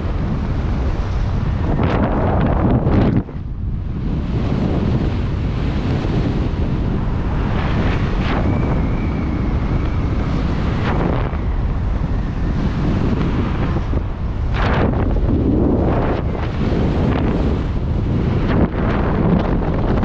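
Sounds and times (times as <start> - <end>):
airflow rushing on microphone: 0.0 - 20.0
faint thin whistle: 8.4 - 10.3.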